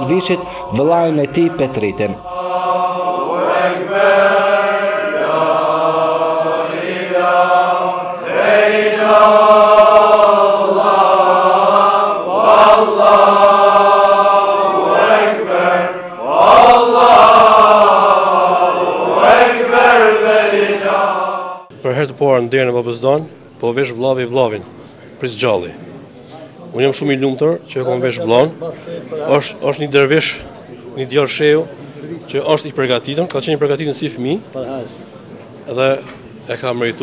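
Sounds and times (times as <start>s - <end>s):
men chanting together: 0.0s - 21.7s.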